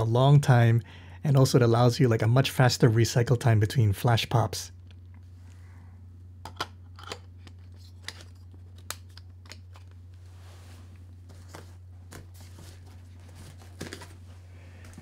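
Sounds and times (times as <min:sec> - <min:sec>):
steady low hum: 0:00.0 - 0:15.0
soft rustling: 0:09.8 - 0:15.0.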